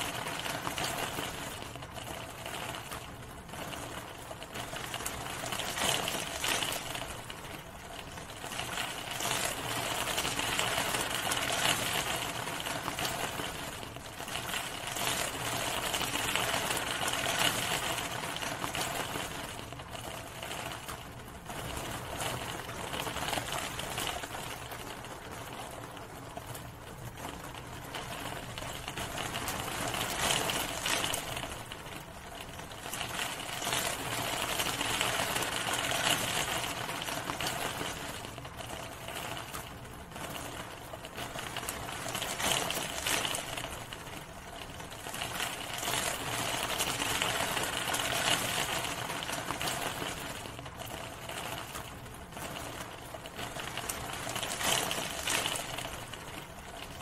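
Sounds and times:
steady rain patter: 0.0 - 57.0.

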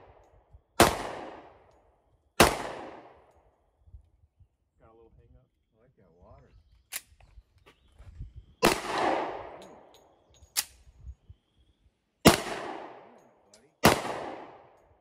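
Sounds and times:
pistol shots echoing: 0.8 - 1.7, 2.4 - 3.3, 8.6 - 9.9, 12.2 - 13.2, 13.8 - 14.8.

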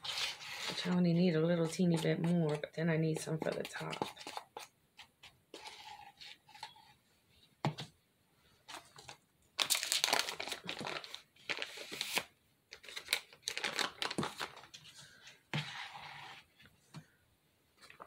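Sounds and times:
plastic bag crinkling: 9.0 - 12.2, 12.8 - 14.7.

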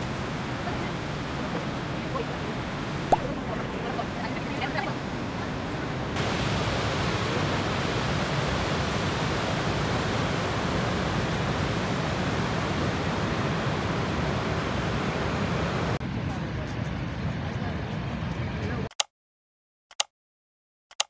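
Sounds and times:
waterfall rushing: 0.0 - 16.0.

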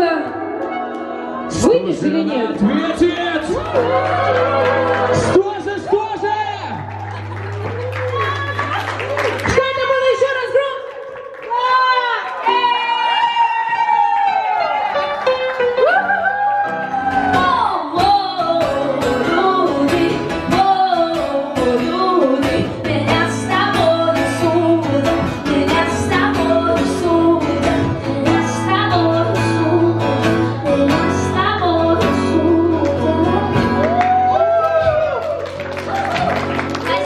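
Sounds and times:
woman singing into a microphone: 17.2 - 33.9
strummed acoustic guitar: 17.4 - 33.8.

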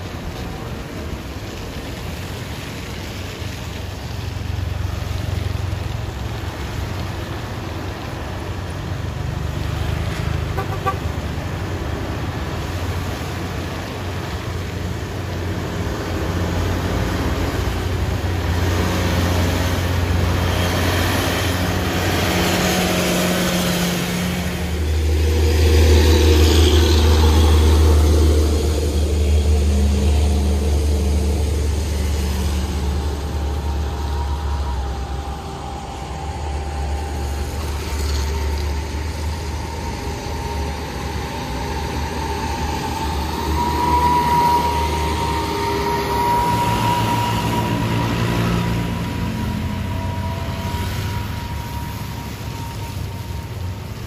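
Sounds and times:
truck and car engines humming: 0.0 - 54.0
vehicle horn toot: 10.5 - 11.2.

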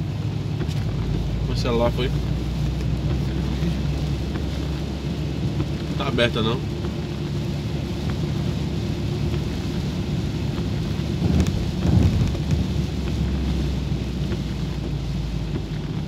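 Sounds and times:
engine humming: 0.0 - 16.0
rain on a car: 0.0 - 16.0
tyres hissing on wet road: 0.0 - 16.0
low thumps: 10.5 - 13.6.

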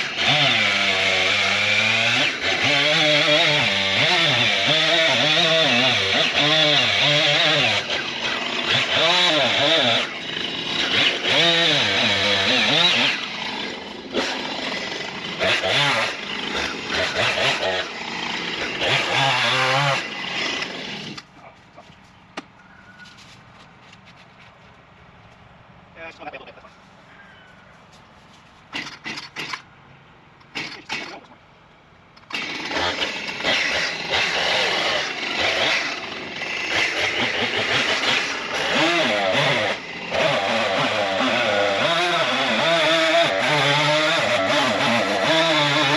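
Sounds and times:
chainsaw engine revving: 0.0 - 21.3, 28.7 - 29.7, 32.2 - 45.9
starter cord rasping pulls: 28.7 - 29.7.

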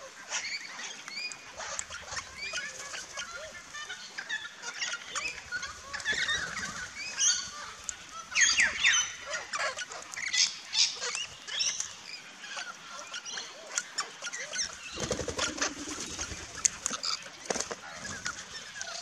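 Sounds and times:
parrots screeching and chattering: 1.5 - 7.8
wings flapping: 14.8 - 18.6.

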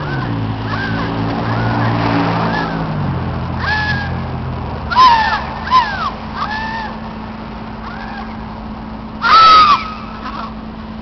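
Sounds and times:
crow-like squawking calls: 0.0 - 2.9, 3.6 - 4.3, 4.9 - 7.1, 7.8 - 8.5, 9.2 - 10.6
steady low hum: 0.0 - 11.0.

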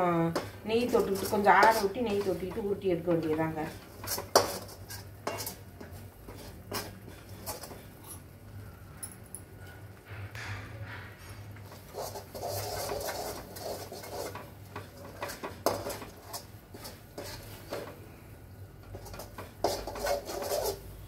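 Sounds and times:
spoon scraping and knocking in pan: 0.3 - 8.3, 10.4 - 18.0, 18.8 - 21.0.

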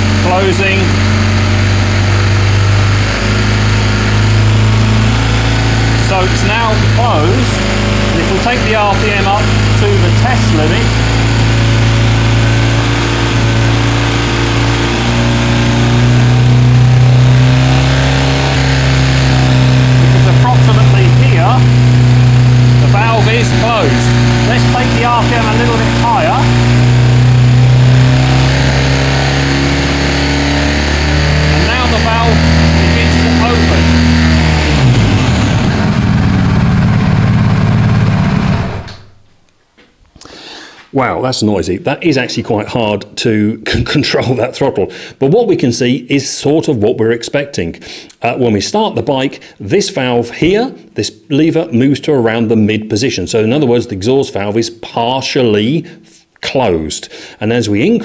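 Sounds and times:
motorcycle engine revving: 0.0 - 39.3.

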